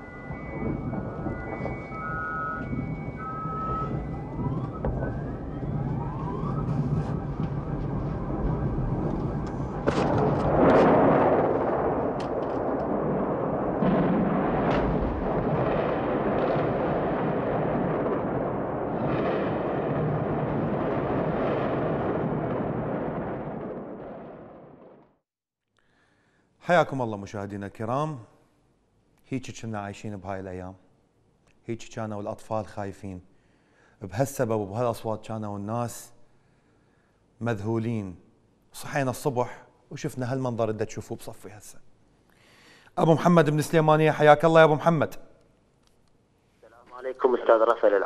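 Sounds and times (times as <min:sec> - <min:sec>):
siren tone: 0:00.0 - 0:10.4
distant explosions and gunfire: 0:00.0 - 0:25.1.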